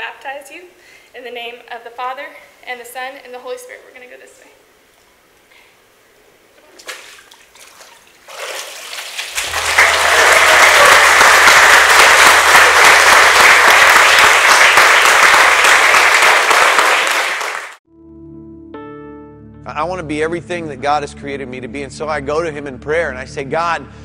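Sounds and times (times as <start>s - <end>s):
congregation applauding: 9.3s - 17.8s.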